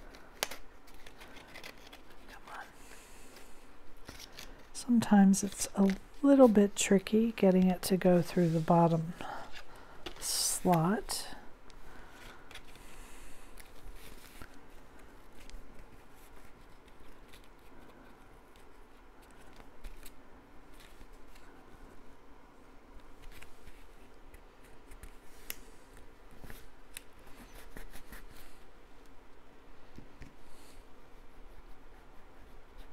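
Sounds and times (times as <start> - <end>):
paper rustling and scraping: 0.0 - 2.4, 3.3 - 4.7, 13.6 - 21.6.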